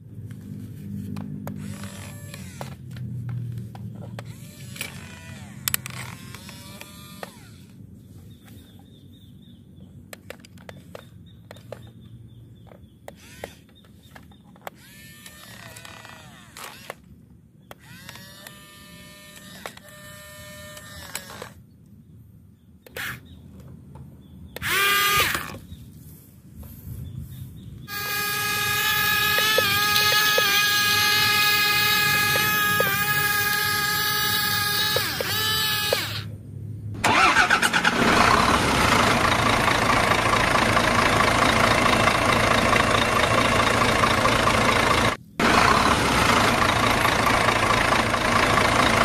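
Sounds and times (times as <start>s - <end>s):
toy electric motors whining: 1.0s - 7.9s, 13.1s - 21.7s, 22.9s - 23.2s, 24.6s - 25.7s, 27.9s - 36.4s, 37.0s - 49.0s.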